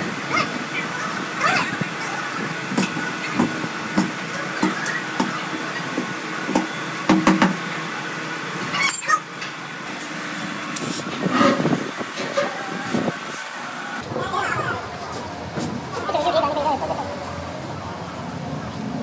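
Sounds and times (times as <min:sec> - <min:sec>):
workshop hum: 0:00.0 - 0:19.0
tools knocking on tyre and rim: 0:06.6 - 0:07.6.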